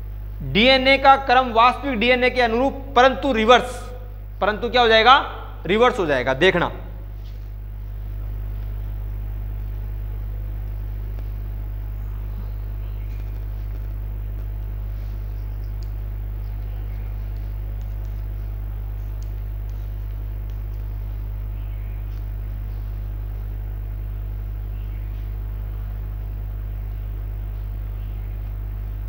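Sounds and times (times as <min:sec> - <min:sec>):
low electrical hum: 0:00.0 - 0:29.0
chalk tapping on blackboard: 0:17.2 - 0:21.0.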